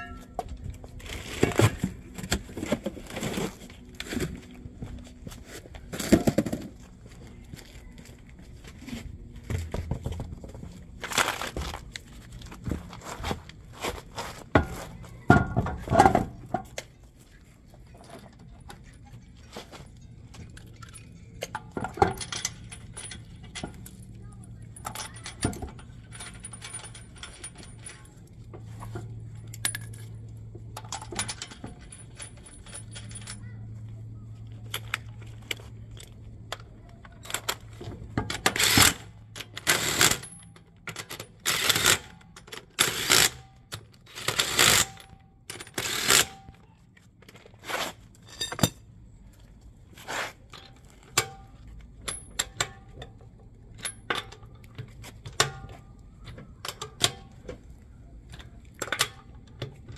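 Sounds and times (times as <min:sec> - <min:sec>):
metal tools clinking: 0:00.0 - 0:01.7, 0:14.5 - 0:46.6, 0:47.2 - 0:48.9
low steady hum: 0:00.0 - 0:59.9.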